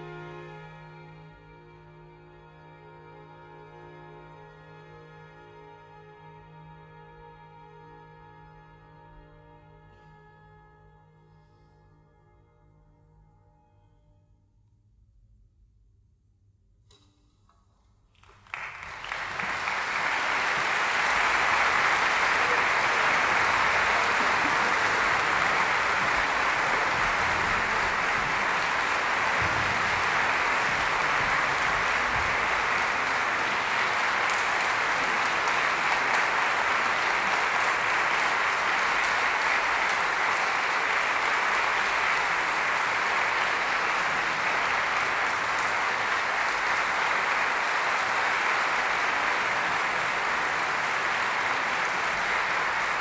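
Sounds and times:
audience applause: 18.2s - 53.0s.

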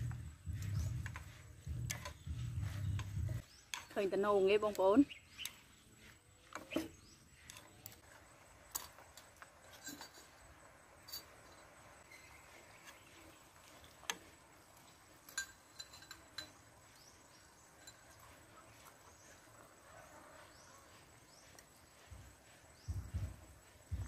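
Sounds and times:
chopsticks clinking: 14.0s - 17.0s, 17.7s - 18.4s
metal ladle against steel pot: 15.2s - 16.7s.

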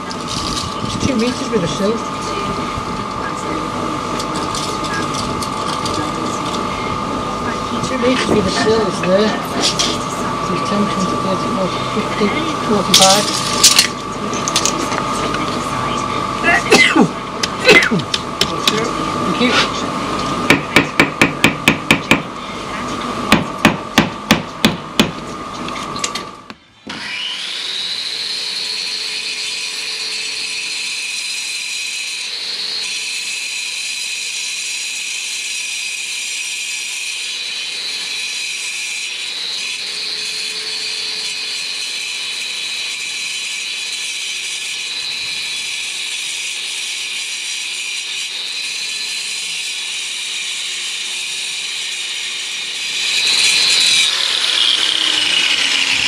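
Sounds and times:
machine running with high whine: 0.0s - 35.5s, 36.6s - 56.0s
hammer striking rapidly: 20.5s - 22.3s, 23.3s - 25.2s.

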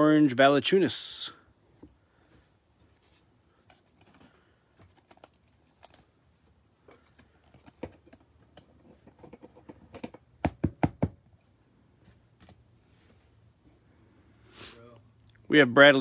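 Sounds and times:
cards clicking and rustling: 3.6s - 6.2s.

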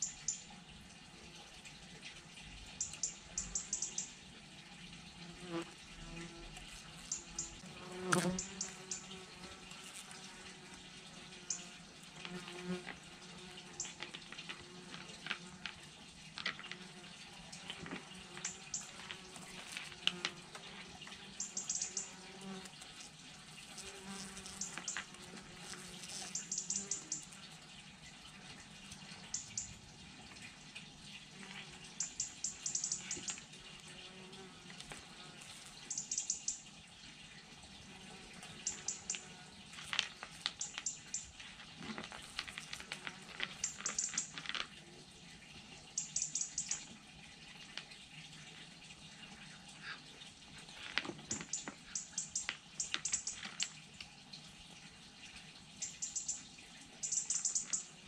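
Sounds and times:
cat crunching dry kibble: 41.5s - 44.7s.

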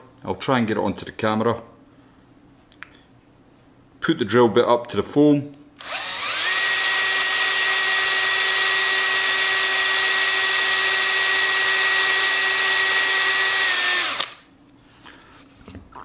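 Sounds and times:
electric drill whining: 5.8s - 14.4s.

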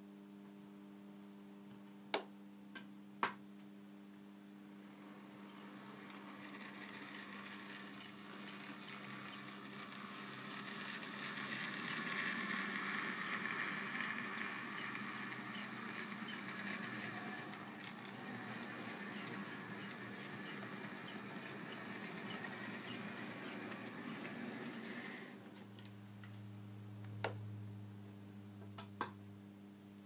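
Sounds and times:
model train whirring on track: 4.8s - 25.4s.

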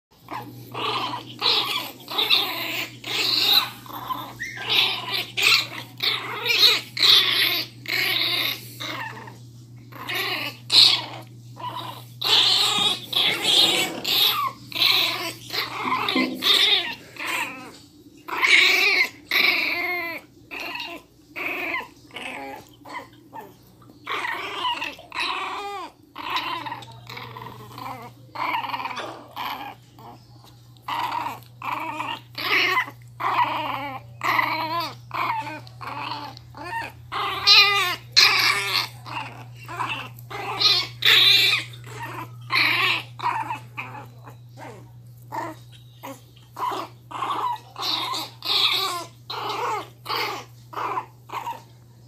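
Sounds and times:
puppy growling and yapping: 0.2s - 51.8s.

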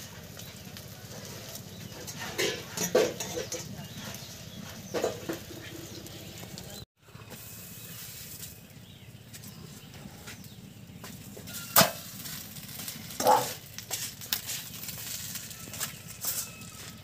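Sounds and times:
metal plate clanking: 1.9s - 4.1s
leaf rustling: 11.5s - 17.0s.

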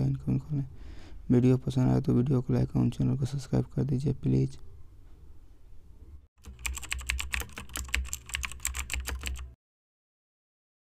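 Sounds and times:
keyboard typing clatter: 6.4s - 9.6s.

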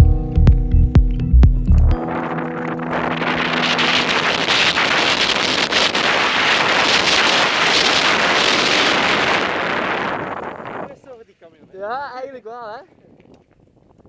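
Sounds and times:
electronic music: 0.0s - 8.3s
wind rushing over microphone: 1.9s - 14.0s
bike tyres rolling on gravel: 2.0s - 14.0s.

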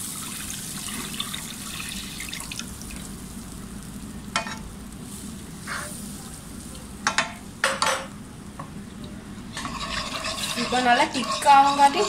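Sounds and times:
spatula scraping and knocking pan: 9.6s - 12.0s.

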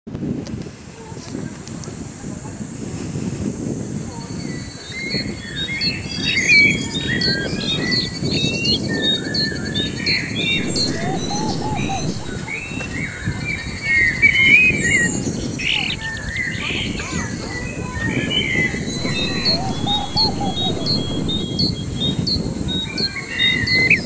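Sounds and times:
steady low rumble: 10.5s - 12.5s, 18.8s - 21.9s.

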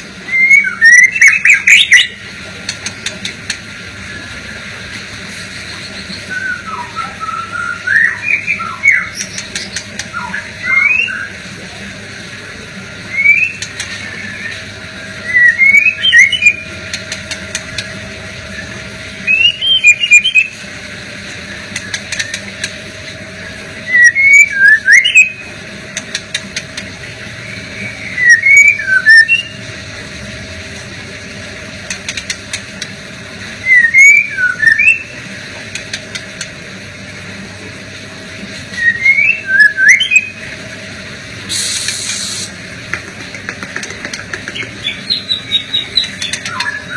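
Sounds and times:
bird singing whistled phrases: 0.2s - 2.2s, 6.1s - 11.4s, 13.1s - 14.6s, 15.2s - 16.8s, 18.5s - 20.6s, 23.8s - 25.4s, 27.4s - 29.6s, 33.6s - 35.2s, 38.7s - 40.4s, 44.8s - 46.9s.

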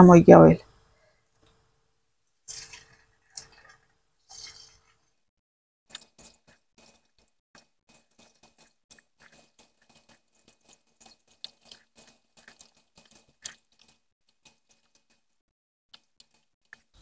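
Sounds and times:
chicken frying in hot oil: 2.4s - 5.2s, 5.9s - 15.4s, 16.0s - 17.0s.

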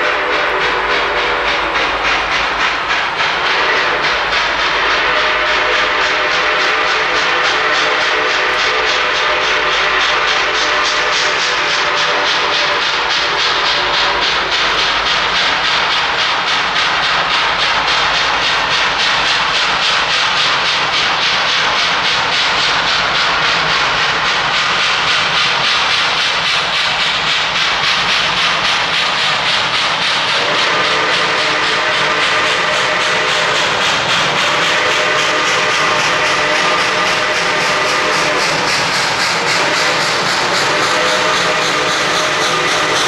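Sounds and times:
steam whistle: 0.0s - 2.6s, 3.4s - 15.1s, 30.3s - 43.0s
steam locomotive exhaust chuffing: 0.0s - 43.0s.

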